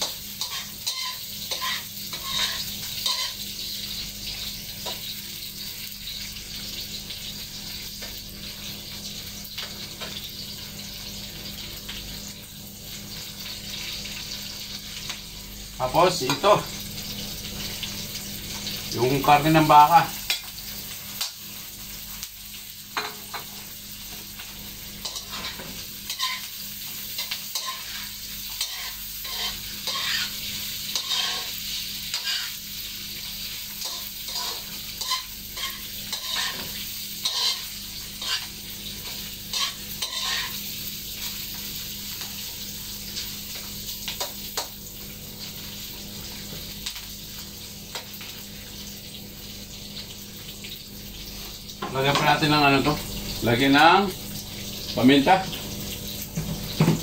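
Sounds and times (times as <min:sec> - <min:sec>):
spatula scraping and clacking on pan: 0:00.0 - 0:03.4, 0:25.0 - 0:32.6, 0:33.8 - 0:40.6
beef sizzling in a wok: 0:00.0 - 0:57.0.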